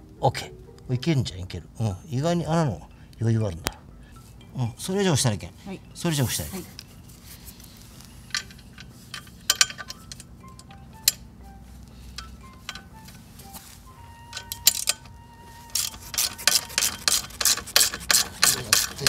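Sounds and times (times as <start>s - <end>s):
soft plinking background music: 0.0s - 17.2s
socket wrench clicking: 8.3s - 11.2s, 14.3s - 15.1s, 15.8s - 19.0s.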